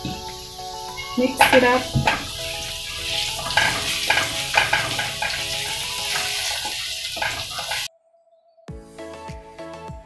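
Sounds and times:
potatoes sizzling in oil: 0:00.0 - 0:07.9.

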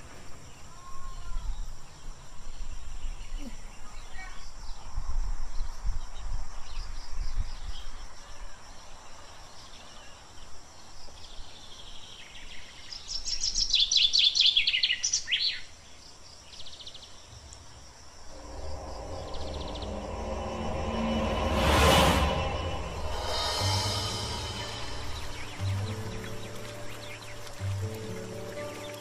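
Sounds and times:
insects chirring: 0:14.6 - 0:29.0
bird singing falling notes: 0:18.3 - 0:29.0
background music: 0:18.4 - 0:29.0.

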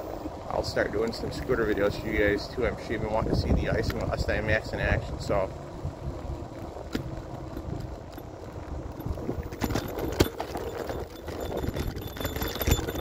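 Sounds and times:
scooter wheels rumbling: 0:00.0 - 0:13.0
knocks and rattles over bumps: 0:05.8 - 0:13.0.

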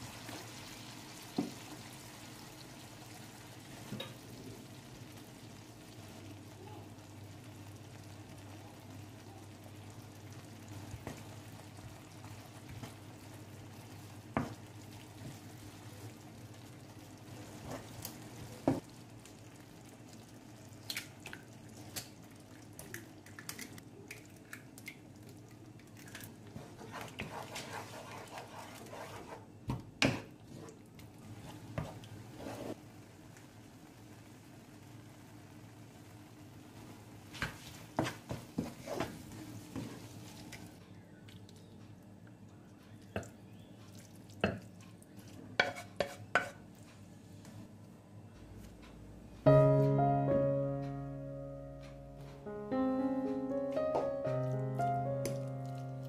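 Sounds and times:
onions simmering in a pan: 0:00.0 - 0:48.9
wooden spoon scraping a pan: 0:26.5 - 0:32.8, 0:37.4 - 0:40.4, 0:45.2 - 0:46.6.

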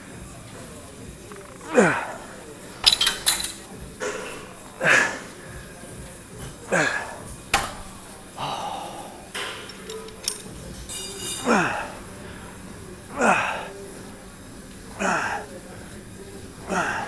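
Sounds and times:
person grunting: 0:01.6 - 0:02.3, 0:13.1 - 0:13.7, 0:15.0 - 0:15.5, 0:16.7 - 0:17.0
person breathing hard: 0:08.3 - 0:09.3.

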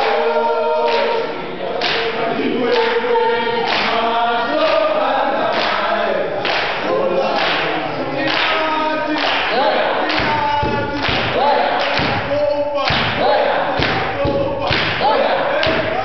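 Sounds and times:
group singing in chorus: 0:00.0 - 0:16.0
strong beat: 0:08.5 - 0:16.0.

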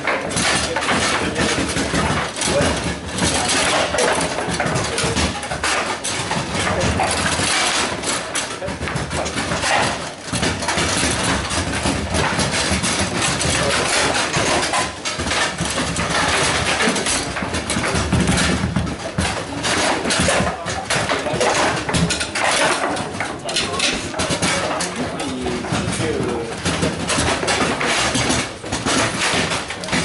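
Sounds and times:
busy playing hall clatter: 0:00.0 - 0:30.0
foosball ball clacking: 0:00.0 - 0:30.0
foosball rods sliding and rattling: 0:00.0 - 0:30.0.

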